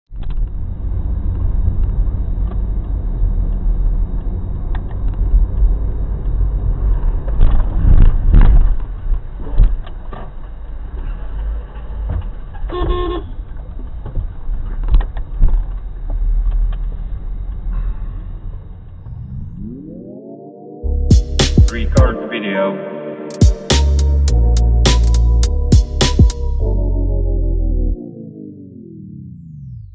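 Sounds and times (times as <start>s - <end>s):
car engine and road rumble: 0.1s - 19.6s.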